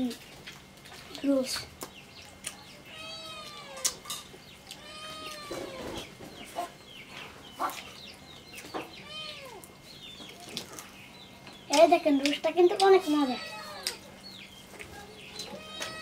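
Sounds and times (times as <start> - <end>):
wet clicks of eating by hand: 0.2 - 2.6, 3.5 - 4.0, 11.5 - 13.0, 13.8 - 14.0
hens clucking: 2.3 - 10.9.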